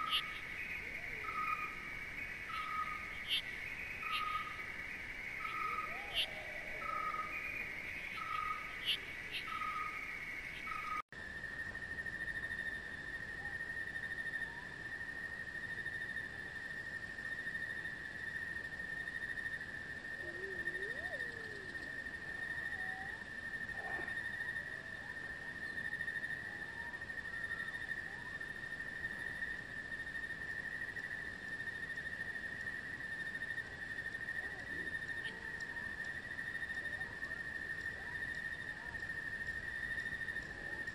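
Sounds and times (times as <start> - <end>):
faint bird calls: 0.0 - 11.0, 20.2 - 25.9
insect high-pitched trill: 0.0 - 11.0
insects chirping rhythmically: 0.0 - 40.9.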